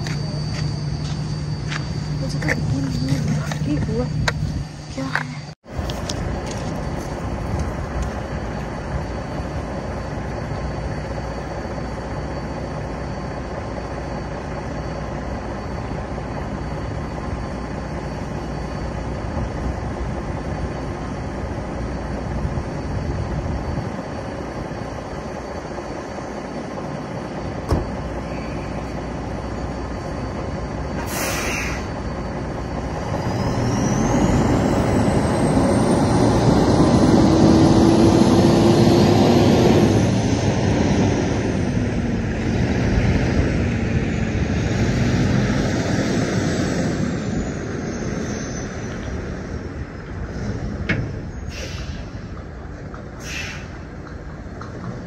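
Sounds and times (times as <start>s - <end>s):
high whine rising in pitch: 0.0s - 50.6s
truck diesel engine running: 0.0s - 55.0s
air hiss: 31.0s - 31.9s, 51.5s - 52.2s, 53.2s - 53.8s.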